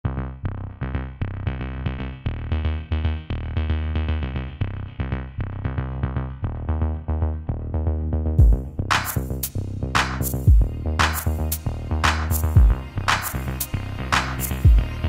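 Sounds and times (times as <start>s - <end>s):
deep bassline: 0.0s - 15.0s
synthesizer pattern: 8.4s - 15.0s.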